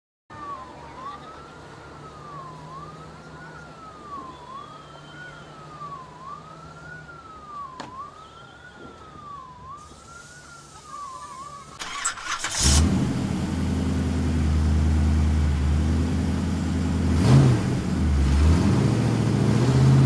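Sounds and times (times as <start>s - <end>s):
siren wailing: 0.3s - 12.8s.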